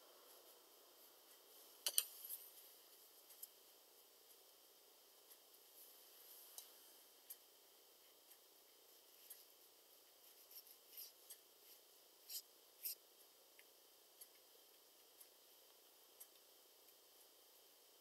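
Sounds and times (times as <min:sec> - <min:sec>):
brush ticking and scratching on paper: 0:07.4 - 0:17.4.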